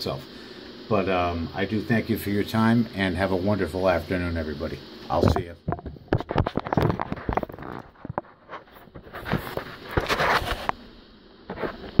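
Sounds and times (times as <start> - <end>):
phone handling clicks and knocks: 5.3 - 7.4
rubbing scraping rustle: 6.2 - 10.8.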